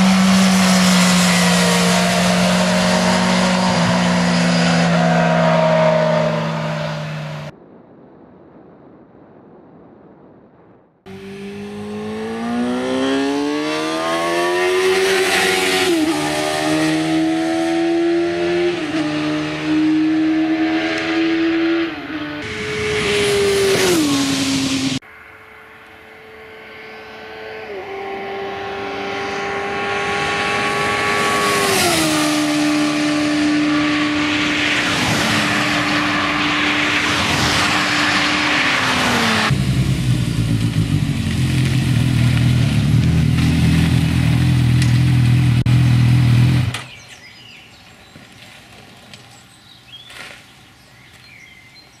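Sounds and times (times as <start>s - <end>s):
vehicles passing at speed: 0.0s - 7.6s, 11.1s - 51.4s
quiet outdoor ambience: 24.3s - 34.8s, 39.5s - 52.0s.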